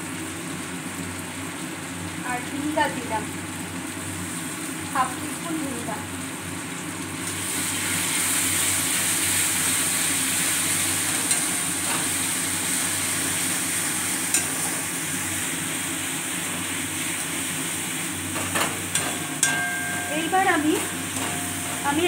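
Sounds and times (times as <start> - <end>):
vegetables sizzling in a wok: 0.0 - 22.0.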